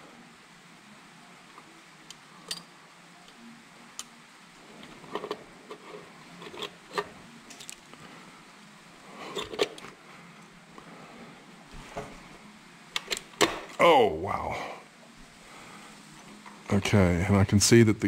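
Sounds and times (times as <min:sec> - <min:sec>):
small metallic clicks and clinks: 0:02.1 - 0:03.4.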